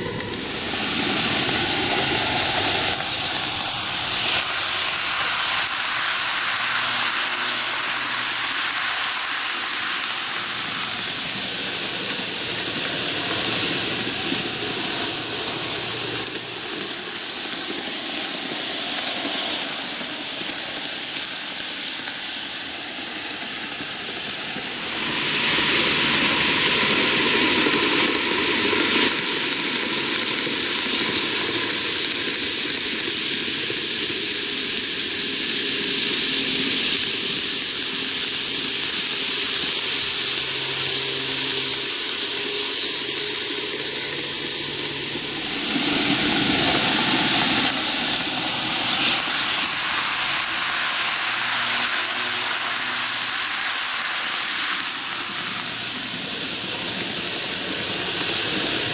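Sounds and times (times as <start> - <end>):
electric motor hum: 0.0 - 22.2, 35.8 - 58.9
model train wheels rattling: 0.0 - 58.9.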